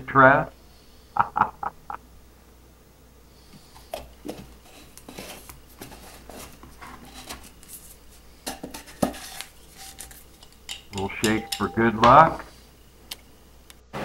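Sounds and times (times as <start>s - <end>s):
metal lid scraping on glass jar: 8.5s - 12.2s.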